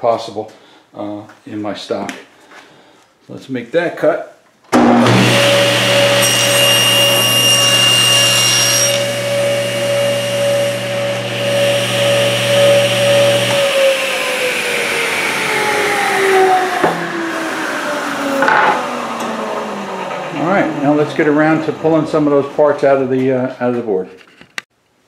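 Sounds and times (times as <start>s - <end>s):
saw blade cutting board: 4.8s - 22.4s
saw spinning down: 4.8s - 22.6s
table saw running: 4.8s - 23.1s.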